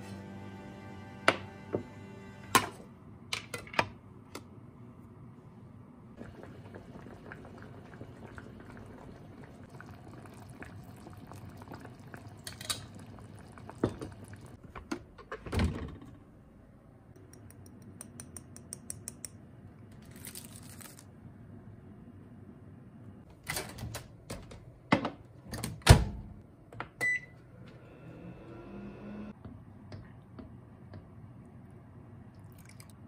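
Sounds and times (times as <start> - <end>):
soup boiling and bubbling: 6.2 - 14.6.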